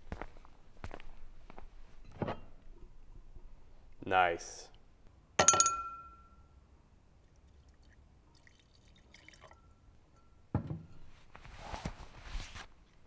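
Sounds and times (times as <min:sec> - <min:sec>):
faint glass clinks: 0:05.4 - 0:06.5, 0:09.5 - 0:11.1
water splashing into a glass: 0:07.5 - 0:09.7.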